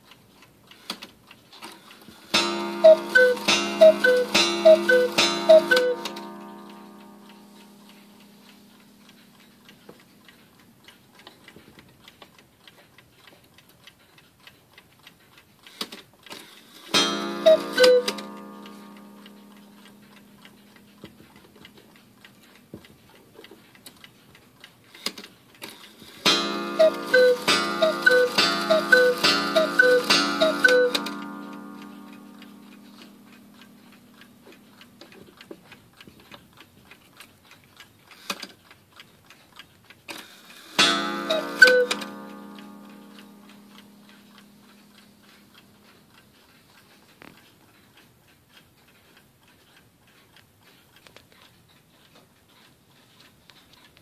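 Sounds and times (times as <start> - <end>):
clock ticking softly: 0.0 - 54.0
mechanical clicks: 0.0 - 54.0.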